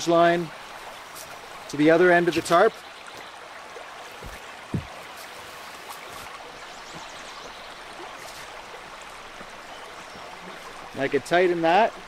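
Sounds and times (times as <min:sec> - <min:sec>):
stream rushing: 0:00.0 - 0:12.0
footsteps rustling: 0:04.1 - 0:07.1, 0:08.2 - 0:08.6.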